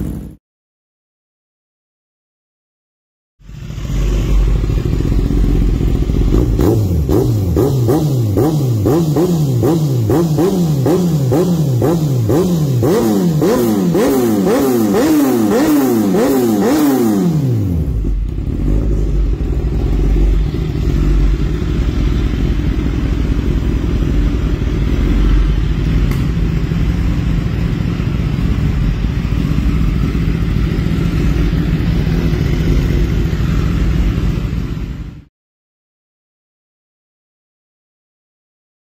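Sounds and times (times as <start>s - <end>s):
motorcycle engine idling: 0.0s - 0.4s, 3.5s - 35.3s
motorcycle engine revving: 0.0s - 0.4s, 3.4s - 35.3s.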